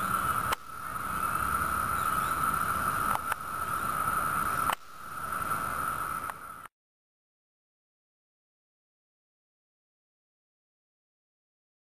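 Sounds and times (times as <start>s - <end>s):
cicadas droning: 0.0s - 6.7s.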